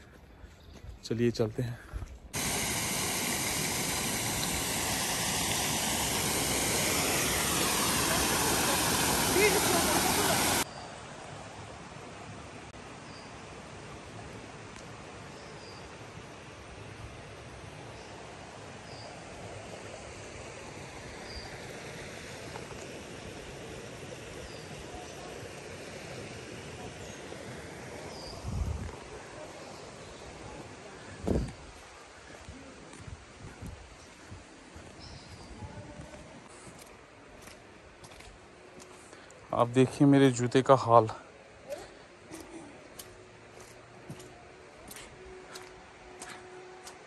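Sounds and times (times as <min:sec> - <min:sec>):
water rushing over rocks: 0:02.4 - 0:10.7
water rushing over weir: 0:02.4 - 0:10.7, 0:18.2 - 0:32.9.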